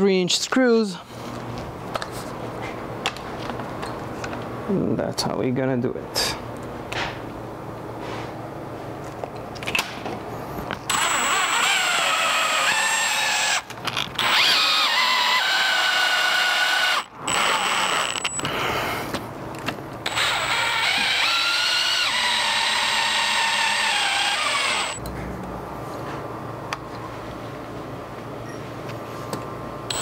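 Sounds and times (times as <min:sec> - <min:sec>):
cordless drill motor whining: 0:10.9 - 0:18.6, 0:20.0 - 0:25.0.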